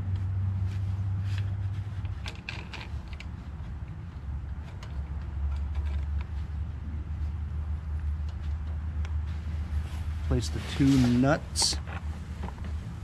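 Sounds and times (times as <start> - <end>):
steady low rumble: 0.0 - 13.0
fuel hose clicks and rattles: 1.2 - 6.5.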